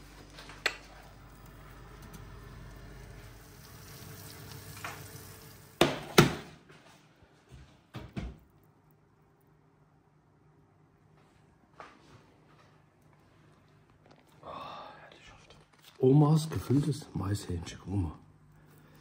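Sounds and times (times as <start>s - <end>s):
chicken sizzling in a pan: 1.2s - 6.2s.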